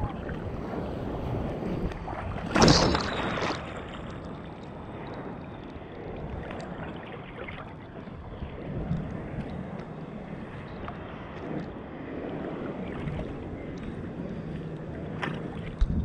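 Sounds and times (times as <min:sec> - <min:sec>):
shallow surf sloshing: 0:00.0 - 0:16.0
wind buffeting microphone: 0:00.0 - 0:16.0
loud water splash: 0:02.4 - 0:04.0.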